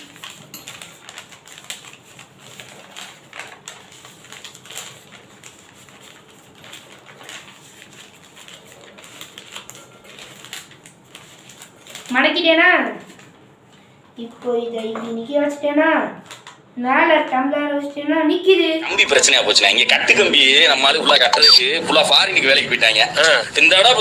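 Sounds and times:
paper crinkling: 0.0 - 12.2.

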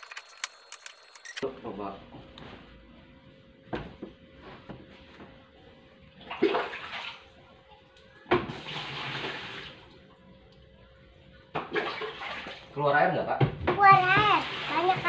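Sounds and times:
water gushing out of drain: 8.5 - 9.8, 14.3 - 15.0.

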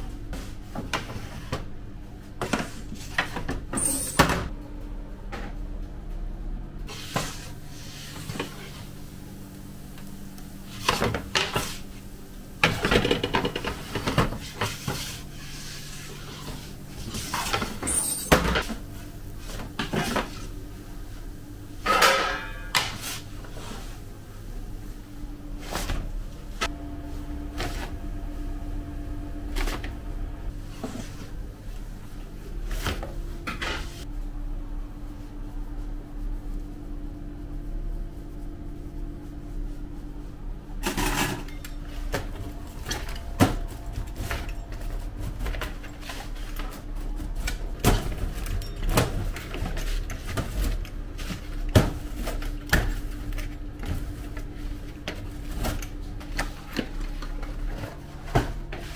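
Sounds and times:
steady low hum: 0.0 - 58.9
clatter of kitchen utensils: 21.8 - 23.0.

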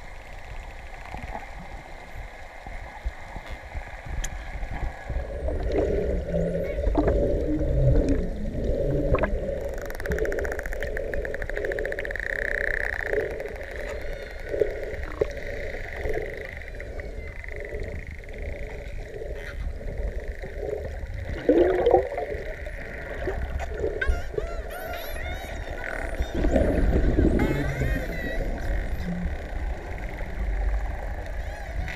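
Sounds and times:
underwater hum and rumble: 0.0 - 31.9.

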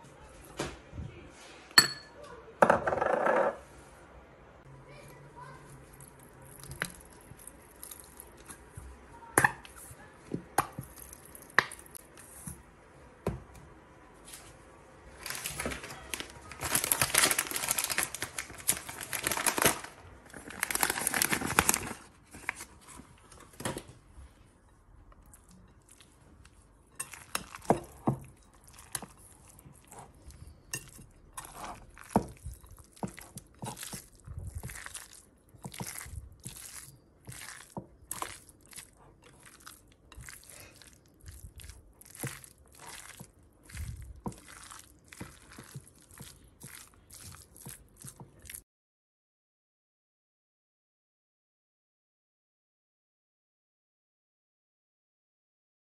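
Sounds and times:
cutlery clinking on ceramic bowl: 1.8 - 3.6, 26.9 - 30.0, 30.6 - 34.0.

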